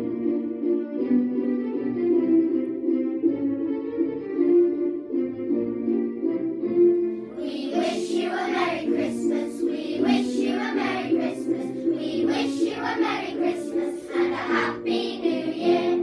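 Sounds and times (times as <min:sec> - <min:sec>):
instrumental accompaniment: 0:00.0 - 0:16.0
children's choir singing: 0:07.3 - 0:16.0.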